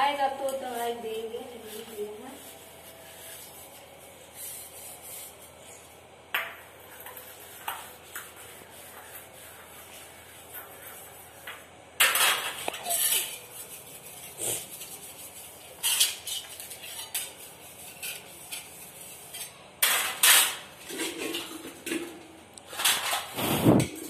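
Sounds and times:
scraping of dishes being washed: 4.3 - 24.0
metal dishes clattering: 19.4 - 23.3.

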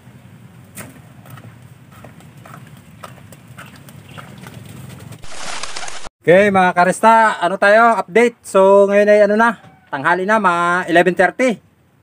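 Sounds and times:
footsteps on ground: 1.3 - 6.1.

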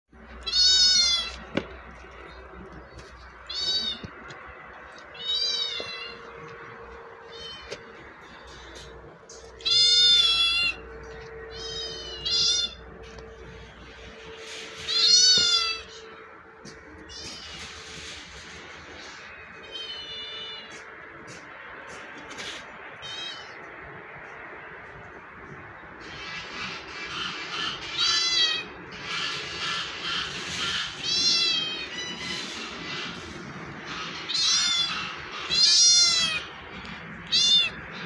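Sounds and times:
kittens meowing: 0.3 - 2.6, 3.2 - 17.8, 19.4 - 20.9, 23.0 - 23.7, 27.3 - 38.0.

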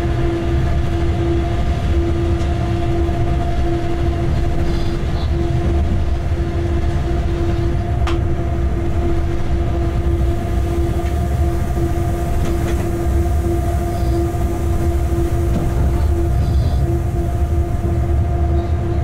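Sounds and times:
constant hum: 0.0 - 19.0
locomotive rumble: 0.0 - 19.0.

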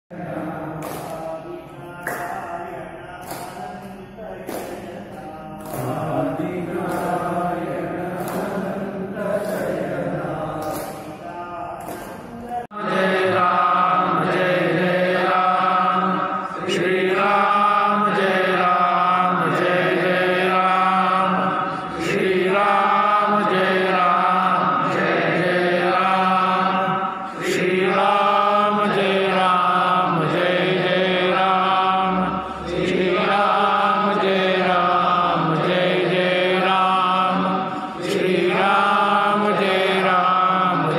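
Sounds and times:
men chanting a hymn: 0.1 - 40.9.

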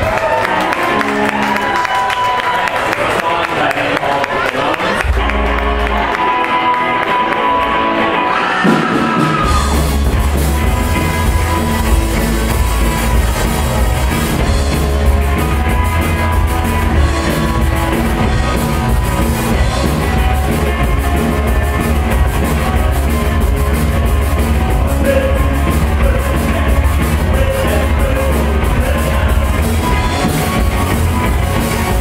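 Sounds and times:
electric guitars: 0.0 - 3.0, 4.2 - 32.0
drum kit: 8.4 - 32.0.

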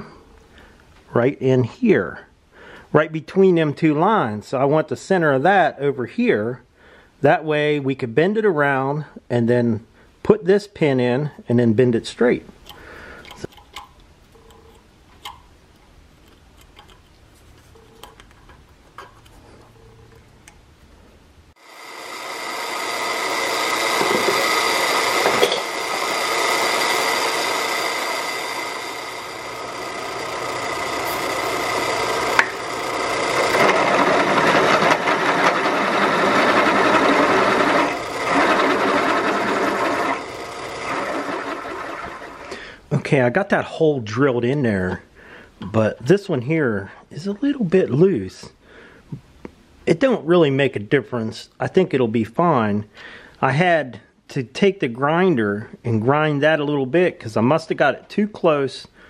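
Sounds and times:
drill press cutting steel: 21.6 - 42.6.

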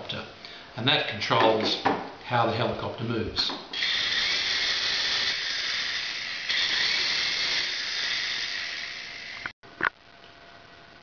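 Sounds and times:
toy helicopter motor whine: 3.8 - 9.5.

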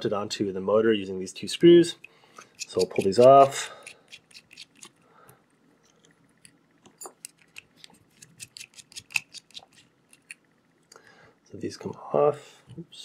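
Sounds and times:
screwdriver clicking on screws: 2.0 - 5.0, 7.1 - 10.4.

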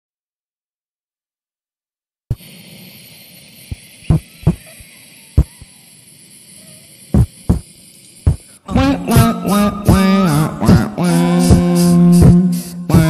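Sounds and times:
steady hiss: 2.3 - 13.0
low mouth-made thumps: 8.7 - 13.0.

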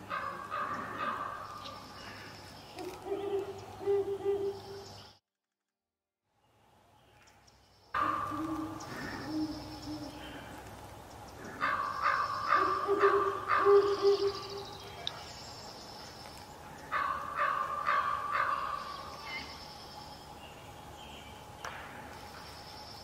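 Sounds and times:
birds calling: 0.0 - 5.2, 7.0 - 23.0
owl hooting: 2.8 - 4.9, 8.0 - 10.6, 11.5 - 14.8.

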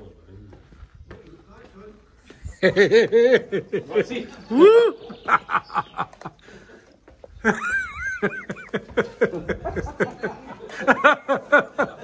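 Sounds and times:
person laughing hard: 7.4 - 12.0.

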